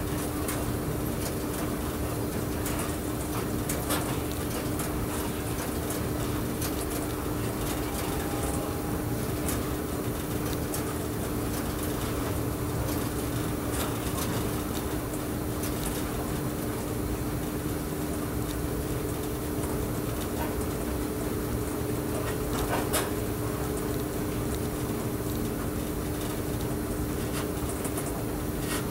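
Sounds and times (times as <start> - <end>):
steady hum: 0.0 - 28.9
electric train running: 5.5 - 12.9.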